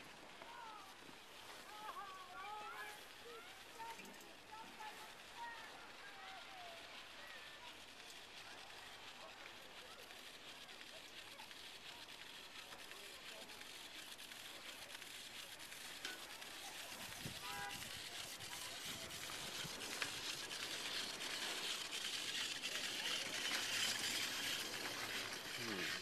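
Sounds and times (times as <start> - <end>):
chairlift steady hiss: 0.0 - 26.0
chairlift rattling whine: 13.4 - 26.0.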